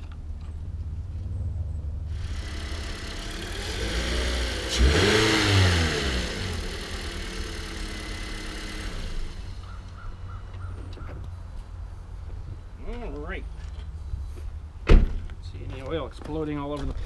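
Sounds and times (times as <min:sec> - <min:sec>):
car engine idling and revving: 0:00.0 - 0:11.9
heavy thump: 0:14.8 - 0:15.3.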